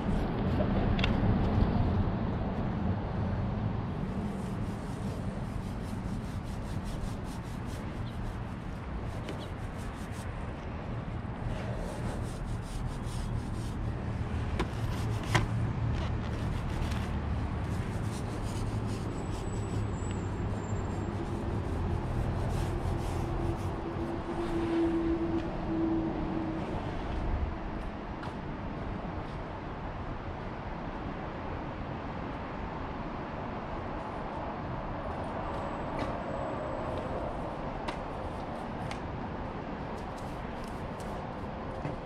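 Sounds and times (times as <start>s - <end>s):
foam roller rubbing wet paint: 4.0s - 10.4s, 11.5s - 13.8s, 16.0s - 23.8s.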